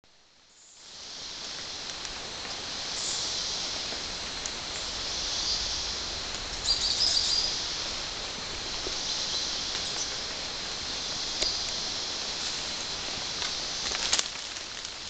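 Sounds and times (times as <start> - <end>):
insect chorus: 0.1 - 15.0
birds chirping: 4.7 - 12.9.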